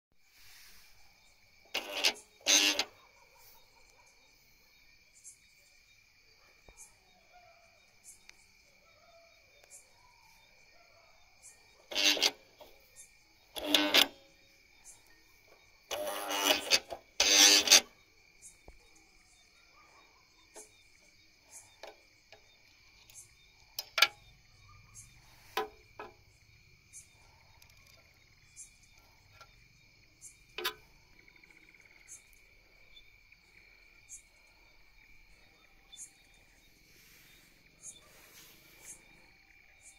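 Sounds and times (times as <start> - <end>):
crickets chirring: 0.2 - 39.9.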